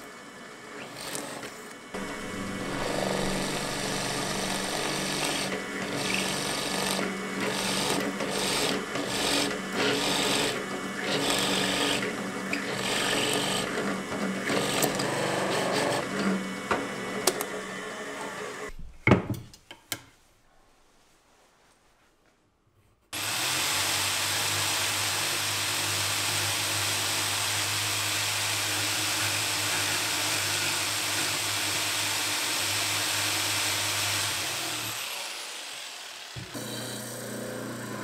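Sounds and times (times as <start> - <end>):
drill press motor hum: 0.8 - 18.7, 28.6 - 38.0.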